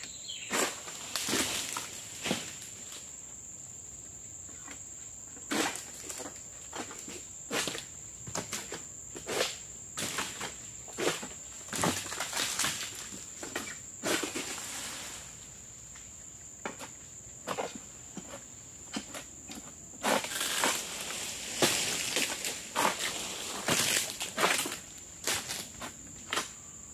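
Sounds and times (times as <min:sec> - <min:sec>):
dry fronds rustling: 0:20.2 - 0:25.8.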